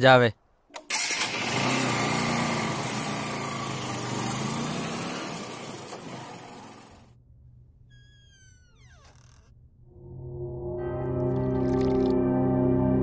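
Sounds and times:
motorcycle engine riding off: 0.9s - 7.1s.

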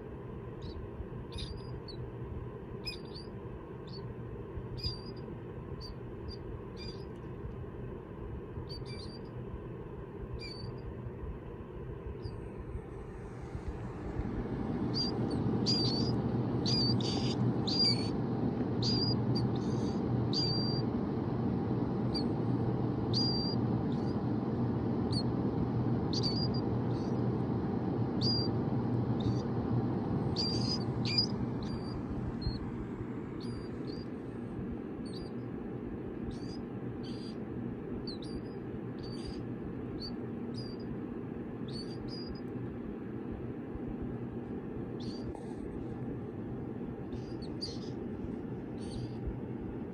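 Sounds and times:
space heater fan whirring: 0.0s - 49.9s
chicks peeping: 13.5s - 22.4s, 23.0s - 24.3s, 26.0s - 27.3s, 28.1s - 32.8s.

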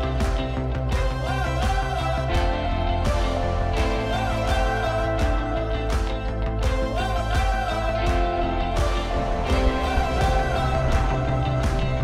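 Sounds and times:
guitar-led background music: 0.0s - 12.0s
steady beat: 0.1s - 12.0s.

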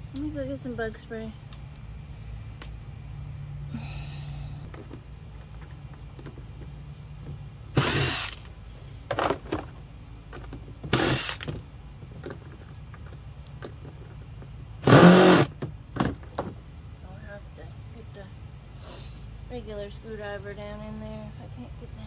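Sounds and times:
cordless drill bursts: 7.7s - 8.4s, 10.9s - 11.5s, 14.8s - 15.6s.

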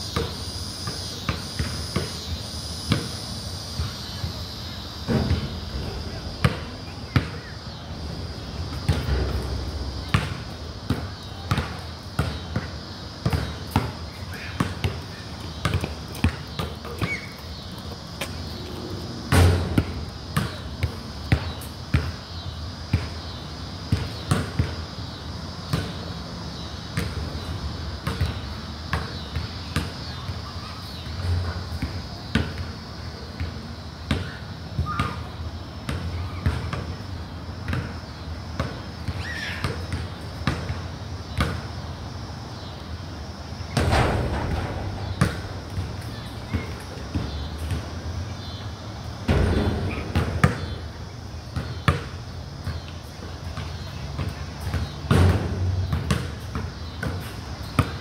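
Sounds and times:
basketball bouncing on hard court: 10.0s - 13.9s, 14.6s - 17.3s, 43.7s - 47.9s, 49.3s - 50.8s, 51.6s - 52.8s, 53.6s - 58.0s.

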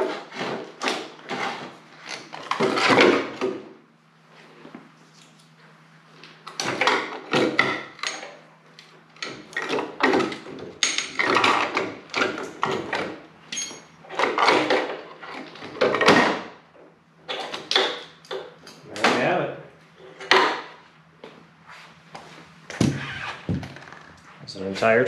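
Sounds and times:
metallic rings: 13.5s - 14.0s.

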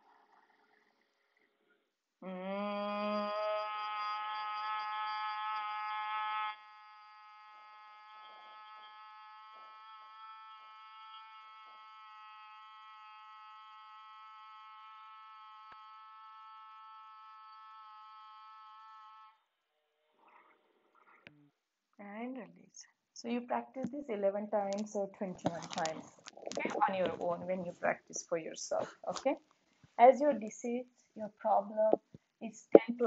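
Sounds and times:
person humming a steady drone: 2.2s - 19.3s.

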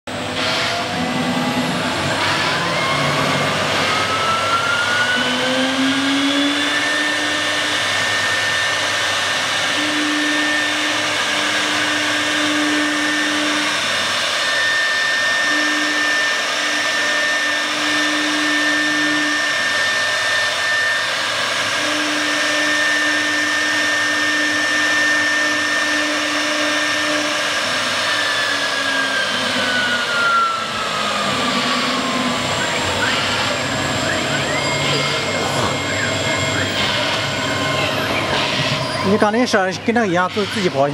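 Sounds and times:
low motor hum: 0.1s - 40.9s
spindle motor whine: 0.1s - 40.9s.

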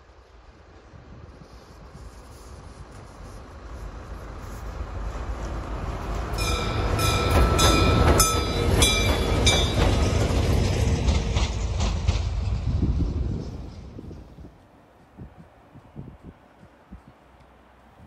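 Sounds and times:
locomotive engines rumbling: 0.0s - 18.0s
train wheels clicking over rail joints: 4.4s - 15.9s.

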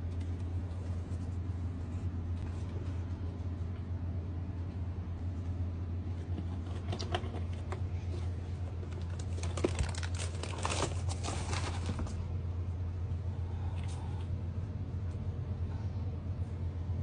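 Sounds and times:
steady low hum: 0.0s - 17.0s
tissue paper rustling: 8.9s - 12.2s.

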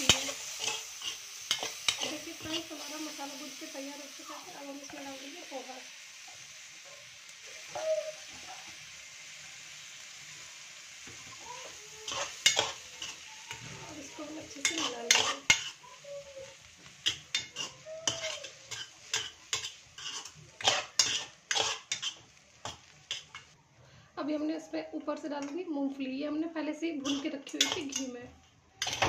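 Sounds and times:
steel spoon scraping a pan: 0.0s - 5.6s, 11.0s - 23.6s, 26.9s - 28.2s, 28.8s - 29.0s
food sizzling in a pan: 0.0s - 29.0s.

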